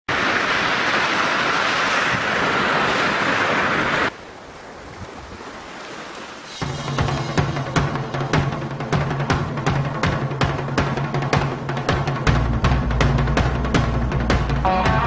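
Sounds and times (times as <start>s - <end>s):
loud rush of wind and surf: 0.1s - 4.2s
waves washing onto beach: 0.1s - 9.5s
music with low notes and drums: 6.6s - 15.0s.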